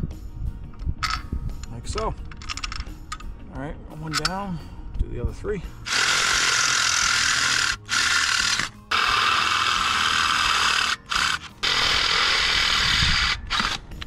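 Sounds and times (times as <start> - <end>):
drill grinding through metal: 5.9 - 14.0.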